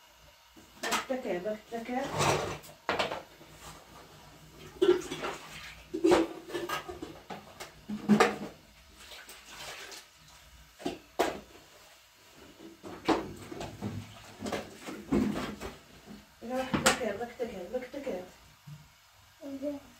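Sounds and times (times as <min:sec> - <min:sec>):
pots and utensils knocking: 0:02.2 - 0:03.3, 0:04.7 - 0:08.6.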